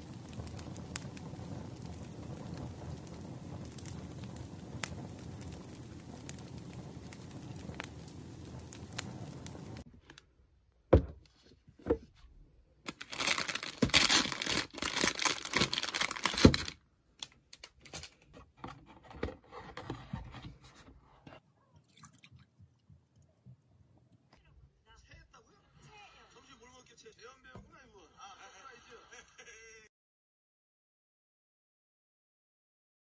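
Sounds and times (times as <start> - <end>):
firewood crackling: 0.0 - 10.4, 12.9 - 21.4
plastic bag crinkling: 12.9 - 18.4.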